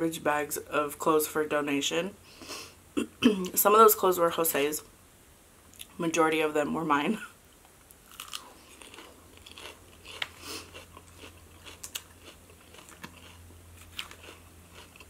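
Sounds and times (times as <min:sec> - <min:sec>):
faint low hum: 0:00.0 - 0:15.0
person chewing crisp lettuce: 0:08.0 - 0:15.0.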